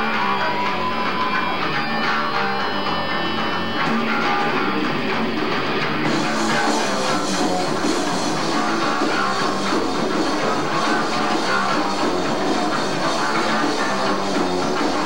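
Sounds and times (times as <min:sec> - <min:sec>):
distorted electric guitars: 0:00.0 - 0:15.0
drums and cymbals: 0:03.0 - 0:15.0.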